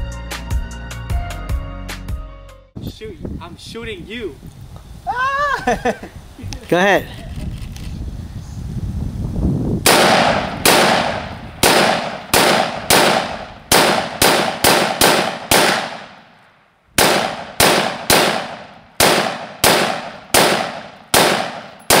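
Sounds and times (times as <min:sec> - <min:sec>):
rifle shots: 0:09.8 - 0:16.4, 0:17.0 - 0:22.0.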